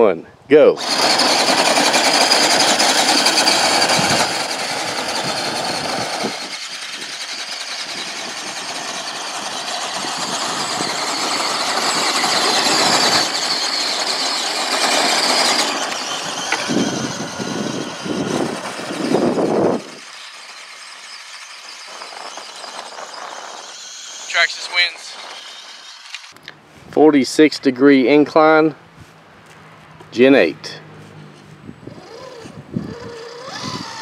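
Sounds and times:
electric motors whining: 0:00.8 - 0:26.5, 0:31.0 - 0:34.0
tyres scrubbing on asphalt: 0:00.8 - 0:26.9.

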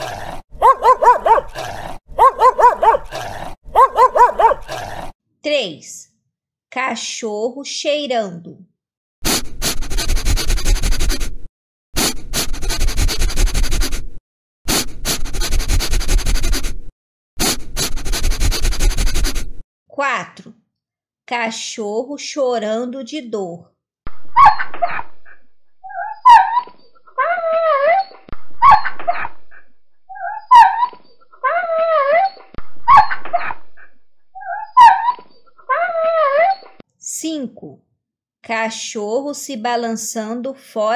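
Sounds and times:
dog sniffing: 0:00.0 - 0:04.8, 0:09.3 - 0:11.4, 0:12.0 - 0:14.1, 0:14.7 - 0:16.8, 0:17.4 - 0:19.6
dog yelping: 0:00.0 - 0:05.1, 0:24.4 - 0:36.8
dog whining: 0:00.6 - 0:01.6, 0:02.2 - 0:05.1, 0:25.8 - 0:29.3, 0:30.1 - 0:33.6, 0:34.4 - 0:36.8.

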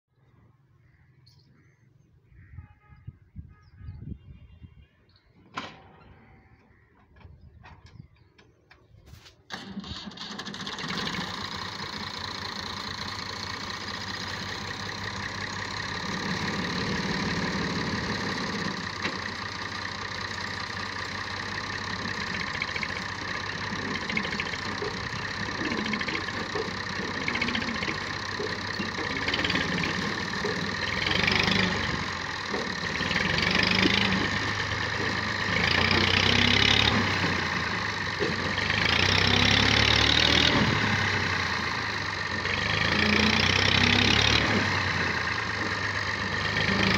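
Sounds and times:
tractor diesel engine revving: 0:09.5 - 0:46.9.

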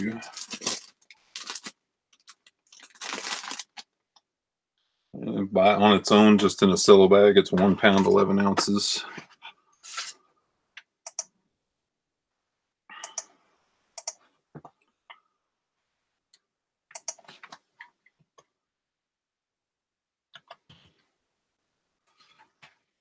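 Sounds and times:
computer keyboard typing: 0:11.1 - 0:11.3
mouse clicks: 0:11.1 - 0:11.3.

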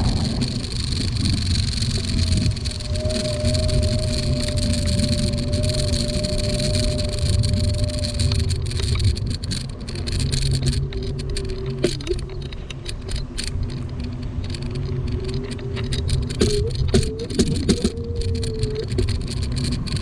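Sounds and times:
faint electric motor whine: 0:00.0 - 0:20.0
light clicks and rattles: 0:00.0 - 0:20.0
scooter wheels rumbling on asphalt: 0:00.0 - 0:20.0.

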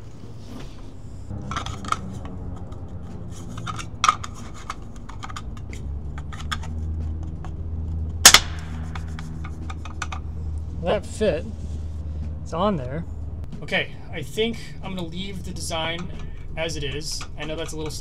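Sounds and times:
steady low hum: 0:00.0 - 0:18.0
plastic mount scraping and snapping: 0:03.4 - 0:07.6.

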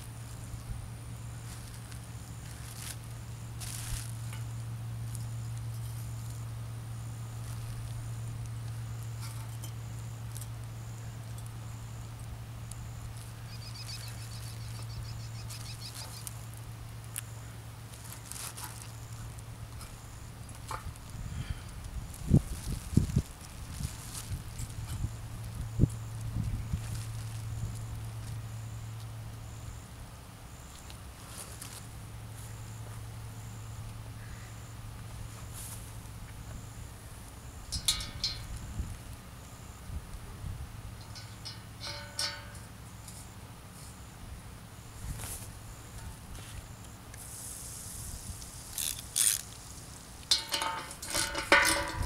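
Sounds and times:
high insect chirp: 0:00.0 - 0:52.0
steady low hum: 0:00.0 - 0:52.0
plastic sheeting crinkling: 0:01.4 - 0:04.3, 0:17.9 - 0:19.4, 0:22.2 - 0:24.8
plastic wrap crinkling: 0:03.6 - 0:04.3, 0:17.9 - 0:19.4.

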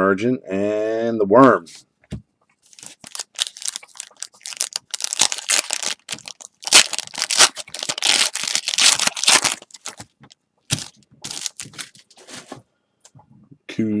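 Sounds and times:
card pack wrapper crinkling: 0:02.6 - 0:12.2.

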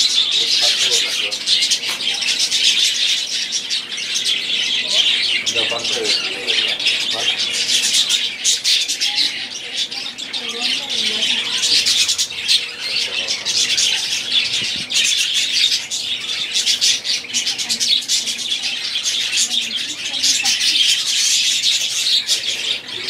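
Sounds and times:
budgerigars chattering: 0:00.0 - 0:23.0.

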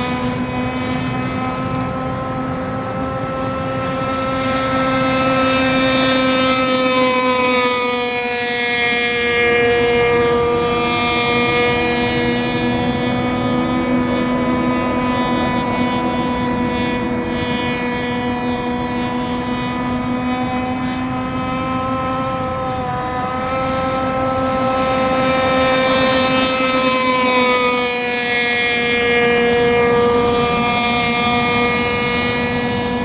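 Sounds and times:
model boat motor whining: 0:00.0 - 0:33.0.

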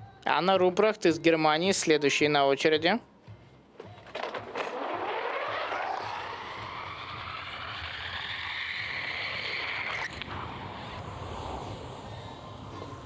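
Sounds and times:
skis rushing hiss on ice tracks: 0:04.8 - 0:13.0.

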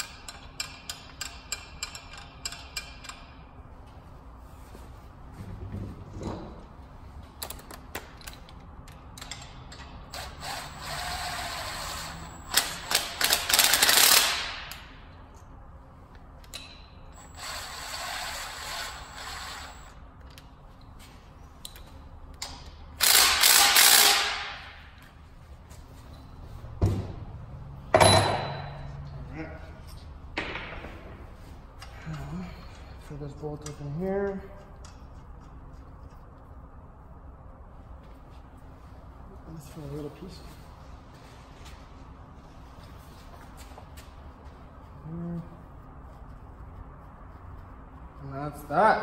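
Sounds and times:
ratchet clicking: 0:00.0 - 0:03.4, 0:08.9 - 0:14.9, 0:22.4 - 0:24.6.

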